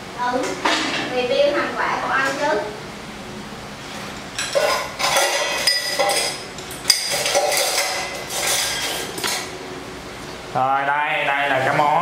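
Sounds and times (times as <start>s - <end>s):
dishes and cutlery clinking: 4.2s - 9.5s.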